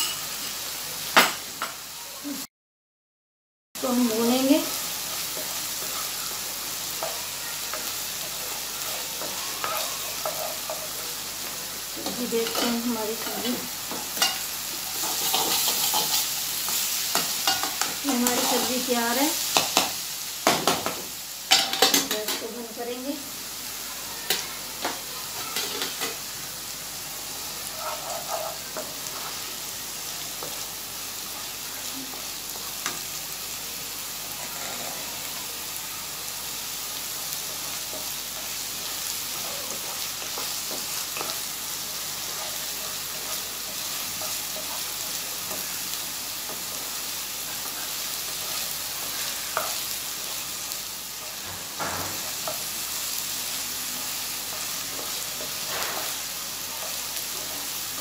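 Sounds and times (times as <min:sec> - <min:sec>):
paste sizzling in hot oil: 0:03.8 - 0:58.0
wooden spatula scraping pan: 0:27.7 - 0:29.4, 0:34.3 - 0:35.3.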